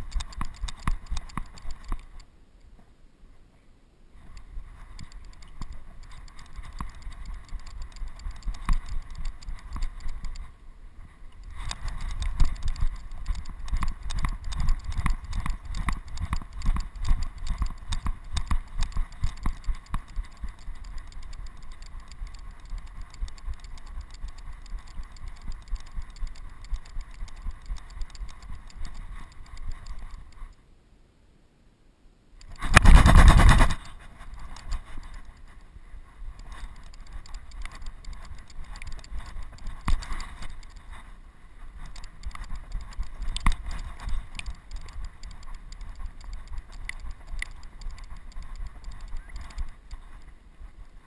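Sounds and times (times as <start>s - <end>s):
wind rumble: 32.6s - 51.0s.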